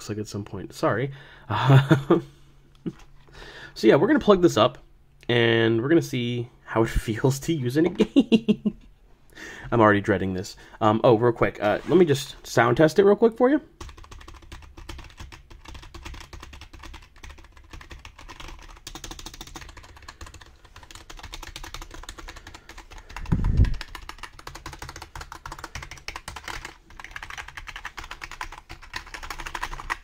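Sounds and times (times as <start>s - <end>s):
fast keyboard typing: 13.8s - 30.0s.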